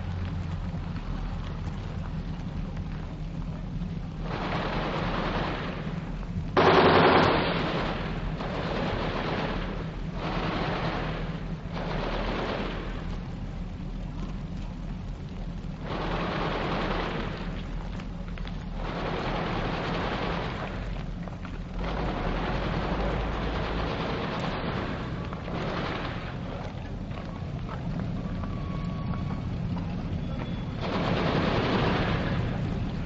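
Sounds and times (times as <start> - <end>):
low rumble: 0.0 - 33.0
machine gun bursts: 4.3 - 6.0, 6.6 - 13.1, 15.8 - 17.6, 18.8 - 20.9, 21.8 - 26.5, 30.8 - 32.7.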